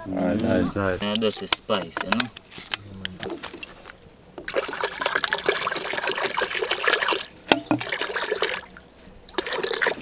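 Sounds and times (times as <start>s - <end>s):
water pouring into metal pot: 4.5s - 8.7s.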